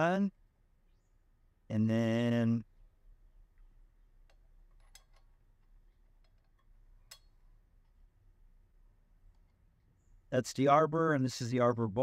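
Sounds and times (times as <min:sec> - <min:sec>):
metallic clicks of washer and bolt: 0:04.2 - 0:08.0.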